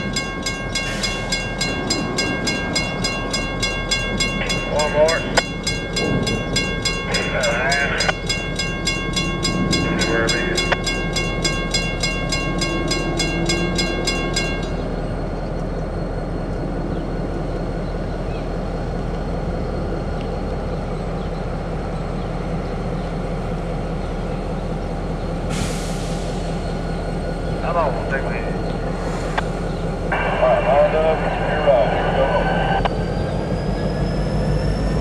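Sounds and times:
railroad crossing bell ringing: 0.0s - 15.6s
low engine rumble: 0.0s - 35.0s.

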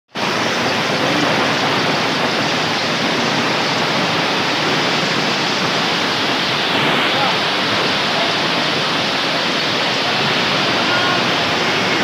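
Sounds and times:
heavy rain and hail pelting: 0.2s - 12.0s.

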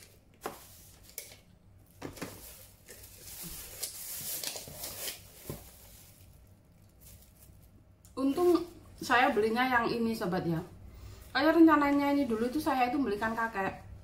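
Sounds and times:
soft rustling: 2.1s - 8.9s.

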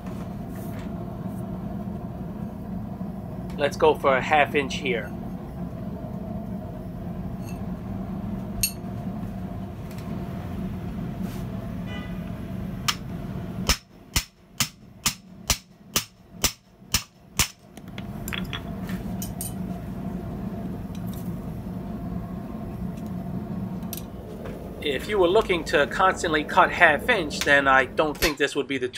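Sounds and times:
steady hum: 0.0s - 28.9s.

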